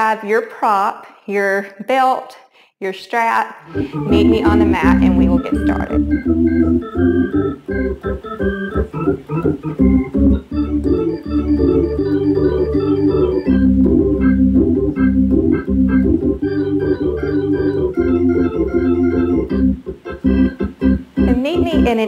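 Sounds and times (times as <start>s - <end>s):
short quick notes: 3.7s - 6.7s
low chords: 3.7s - 22.0s.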